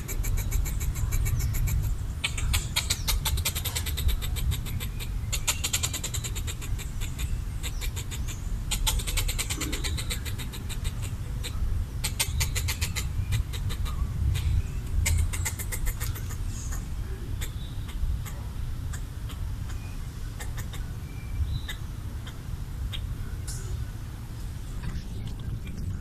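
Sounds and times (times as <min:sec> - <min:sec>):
squirrel chattering: 0:00.0 - 0:23.8
steady low rumble: 0:09.5 - 0:26.0.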